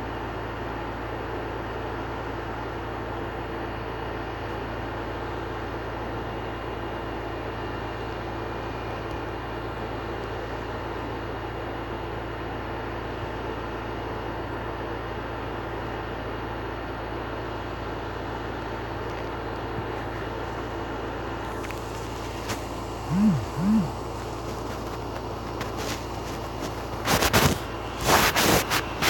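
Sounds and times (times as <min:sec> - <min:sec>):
low electrical hum: 0:21.4 - 0:29.0.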